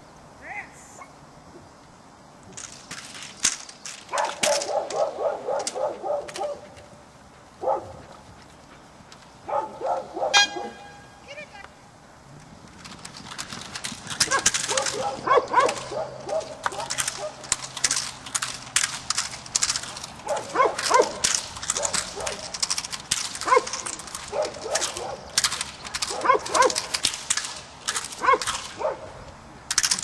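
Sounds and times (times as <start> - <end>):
sharp cracks and slaps: 2.5 - 6.9, 12.4 - 30.0
dog barking: 4.1 - 6.7, 7.6 - 8.1, 9.5 - 10.9, 14.3 - 17.4, 20.3 - 21.2, 21.8 - 22.5, 23.4 - 25.3, 26.1 - 26.9, 28.2 - 29.1.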